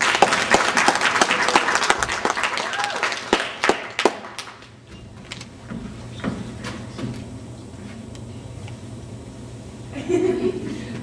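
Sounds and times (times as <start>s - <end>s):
steady low hum: 0.0s - 11.0s
footsteps on wooden stage: 4.7s - 8.1s.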